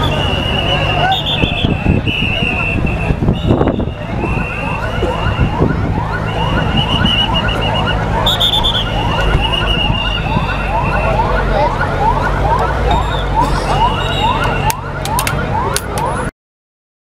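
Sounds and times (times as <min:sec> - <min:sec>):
long high whistle: 0:00.0 - 0:05.6, 0:06.3 - 0:11.1, 0:13.0 - 0:14.7
low engine rumble: 0:00.0 - 0:16.3
siren wailing: 0:00.0 - 0:16.3.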